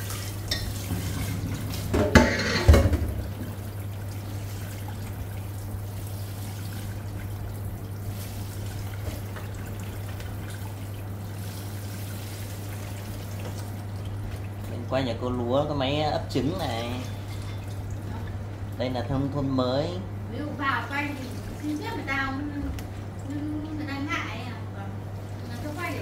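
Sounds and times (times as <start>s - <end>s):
tap water running: 0.0s - 26.0s
metal bowl knocking in sink: 0.5s - 3.3s.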